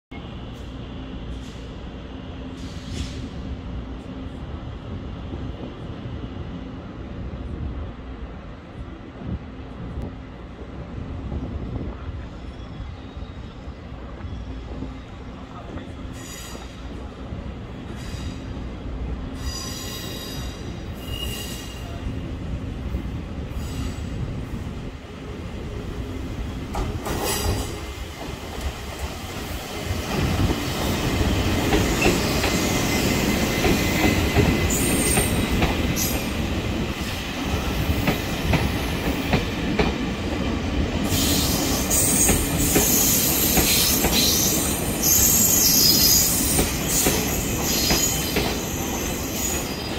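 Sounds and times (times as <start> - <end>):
train rumble and wheel clatter: 0.1 - 49.9
train wheel squeals: 12.2 - 15.1, 16.0 - 17.0, 17.9 - 18.5, 19.3 - 22.1, 23.5 - 24.2, 31.7 - 36.4, 41.0 - 49.9.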